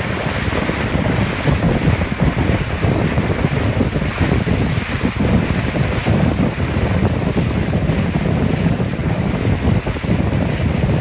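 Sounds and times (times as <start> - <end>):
bow wave rushing through water: 0.0 - 11.0
wind on microphone: 0.0 - 11.0.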